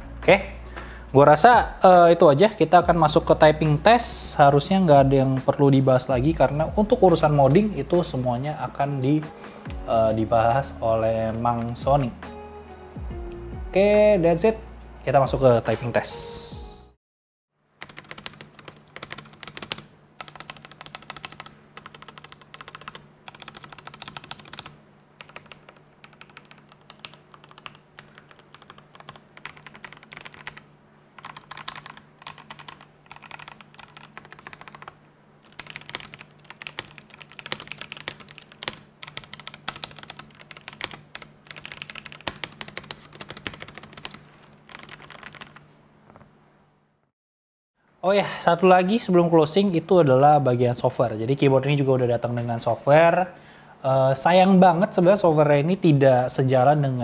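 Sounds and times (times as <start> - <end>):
mechanical keyboard keystrokes: 17.8 - 30.6, 31.2 - 45.6.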